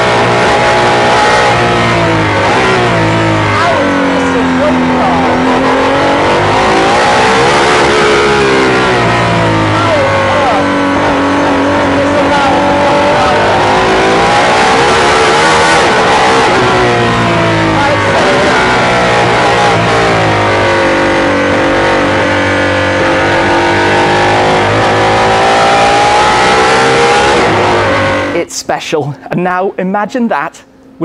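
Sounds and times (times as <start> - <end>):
car engine revving: 0.0 - 28.5.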